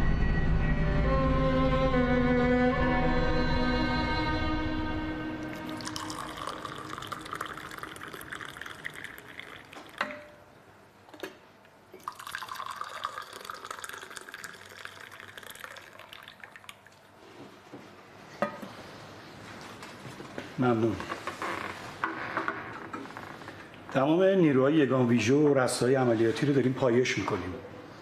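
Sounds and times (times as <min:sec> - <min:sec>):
tea pouring into glass cups: 0:05.4 - 0:10.4, 0:12.0 - 0:17.3.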